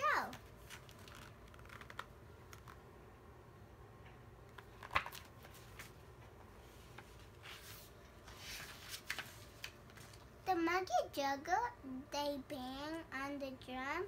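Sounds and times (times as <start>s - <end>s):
paper pages rustling: 0.3s - 2.9s, 4.5s - 10.3s.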